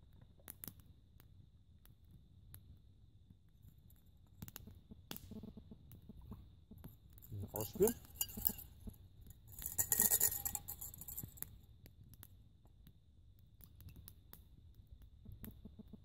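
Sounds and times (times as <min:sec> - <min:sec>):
wood fire crackling: 0:07.2 - 0:11.6
mug clinking: 0:07.3 - 0:08.9, 0:09.5 - 0:11.4.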